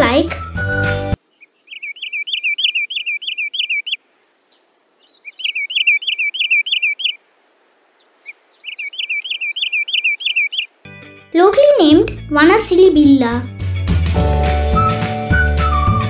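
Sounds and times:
bird calling sharp high notes: 0:00.0 - 0:04.0, 0:05.0 - 0:07.2, 0:08.2 - 0:10.8.

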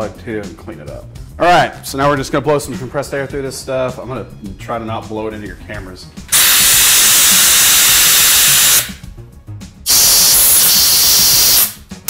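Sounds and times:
compressed air blasts hissing: 0:06.3 - 0:09.0, 0:09.8 - 0:11.8.

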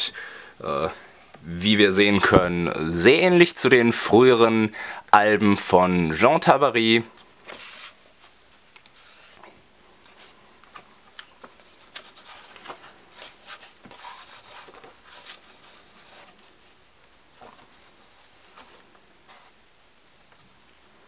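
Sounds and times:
paper pages turning: 0:07.4 - 0:16.8.

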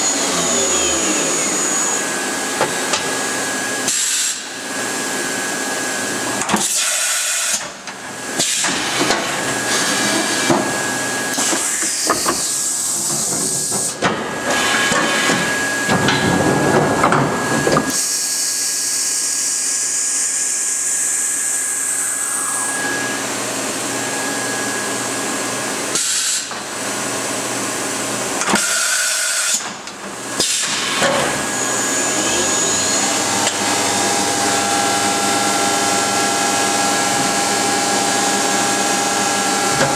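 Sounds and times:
machine whine rising in pitch: 0:00.0 - 0:03.9, 0:14.5 - 0:25.7, 0:31.4 - 0:39.9
machine hiss and whir: 0:00.0 - 0:39.9.

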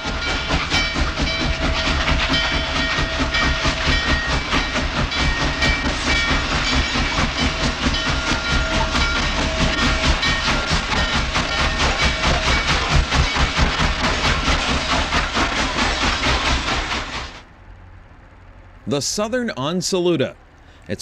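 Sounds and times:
steam locomotive exhaust beats: 0:00.0 - 0:21.0
wheels clattering on rails: 0:00.0 - 0:21.0.

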